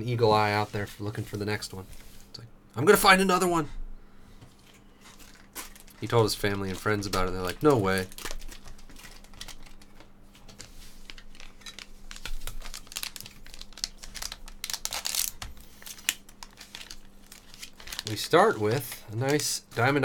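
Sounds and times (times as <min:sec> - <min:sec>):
foil pack crinkling: 0:04.6 - 0:20.0
foil pack tearing: 0:05.1 - 0:20.0.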